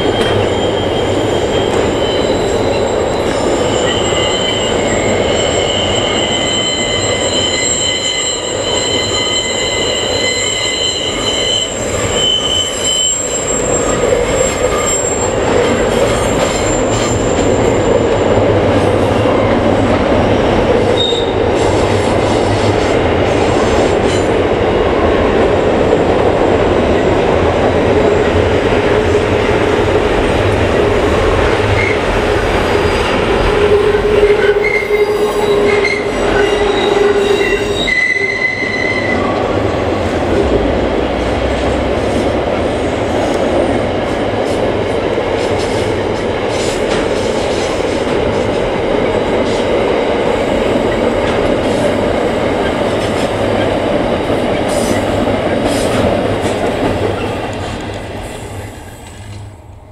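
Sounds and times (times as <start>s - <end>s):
high wheel squeal: 0.0s - 18.3s, 21.0s - 21.7s, 32.8s - 39.6s
train wheels rumbling on bridge: 0.0s - 59.9s.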